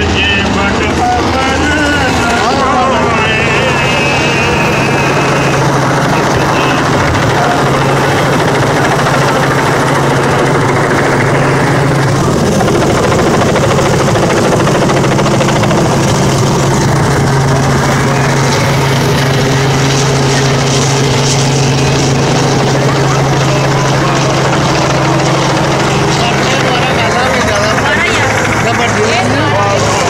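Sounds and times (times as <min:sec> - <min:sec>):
helicopter flying overhead: 0:00.0 - 0:30.0.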